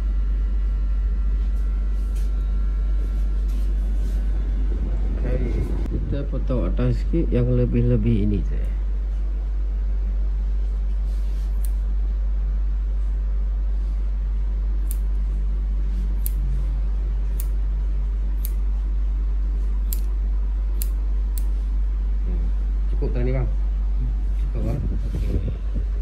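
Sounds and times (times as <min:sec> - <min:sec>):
steady low hum: 0:00.0 - 0:26.0
shears snipping hair: 0:01.5 - 0:04.3, 0:10.9 - 0:12.0, 0:14.7 - 0:16.6, 0:17.2 - 0:17.6, 0:18.2 - 0:18.9, 0:19.6 - 0:21.7.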